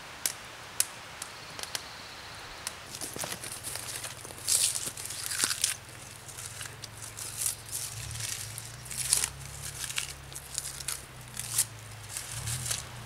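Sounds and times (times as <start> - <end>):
bark being scraped and peeled: 2.9 - 13.0.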